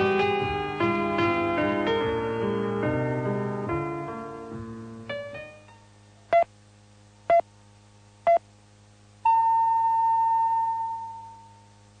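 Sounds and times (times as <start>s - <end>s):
long high-pitched tone: 9.2s - 11.8s.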